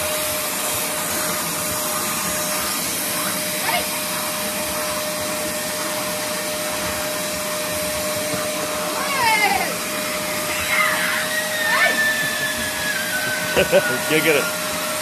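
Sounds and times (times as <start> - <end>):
vacuum cleaner humming: 0.0 - 15.0
puppy whining: 9.0 - 14.6.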